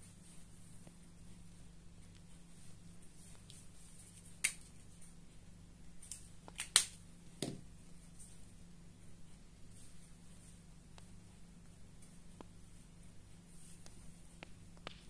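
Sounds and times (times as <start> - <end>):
faint low hum: 0.0 - 15.0
marker knocking on table: 7.4 - 7.6.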